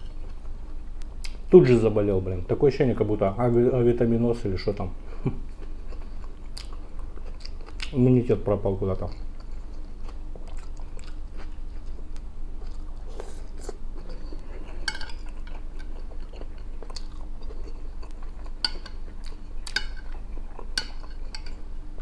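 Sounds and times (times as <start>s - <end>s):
low steady hum: 0.0s - 22.0s
person chewing food: 5.3s - 8.0s, 9.0s - 22.0s
metal fork clinking on plate: 14.8s - 15.3s, 20.8s - 21.6s.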